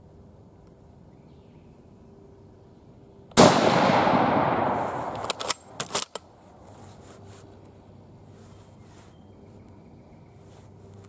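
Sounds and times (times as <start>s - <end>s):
rifle shot echoing: 3.4s - 5.8s
rifle bolt metallic clacks: 5.0s - 6.3s.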